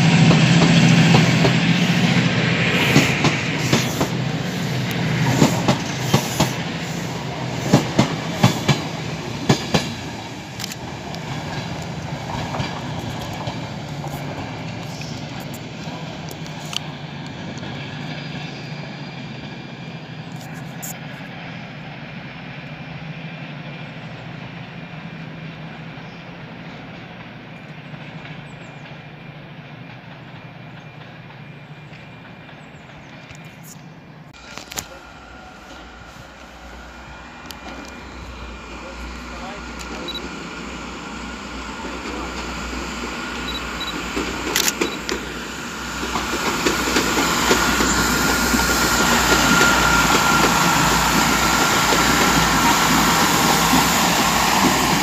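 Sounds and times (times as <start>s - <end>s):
train rumble: 0.0s - 55.0s
train wheels clicking over rail joints: 0.1s - 18.6s, 41.1s - 55.0s.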